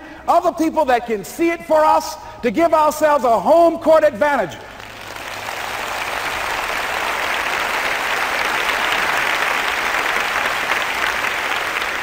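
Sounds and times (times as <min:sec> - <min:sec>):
audience applause: 0:04.8 - 0:12.0.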